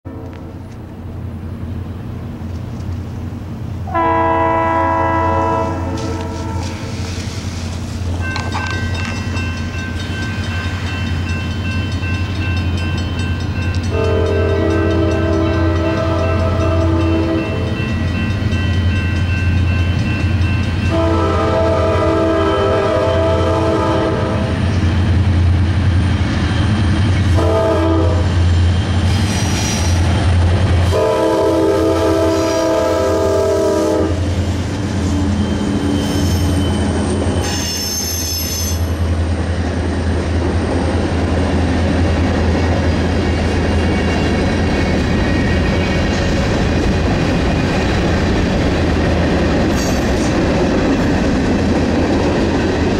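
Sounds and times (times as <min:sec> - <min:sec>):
locomotive air horn blasts: 0:03.9 - 0:07.0, 0:13.9 - 0:17.8, 0:20.9 - 0:24.6, 0:27.3 - 0:28.4, 0:30.8 - 0:34.3.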